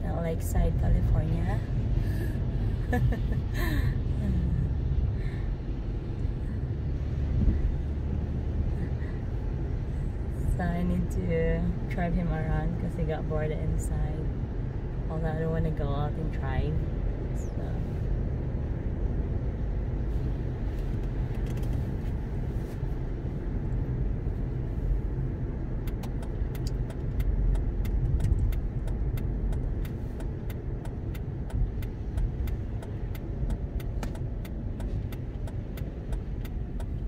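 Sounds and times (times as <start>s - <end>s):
car driving on wet road: 0.0s - 37.0s
light sharp ticks: 25.8s - 37.0s.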